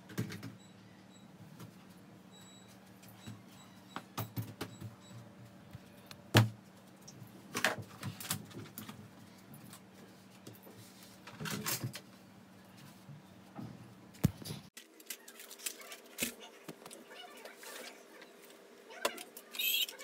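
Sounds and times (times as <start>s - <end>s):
small clatters of objects: 14.2s - 17.9s
rustling of papers: 14.3s - 20.0s.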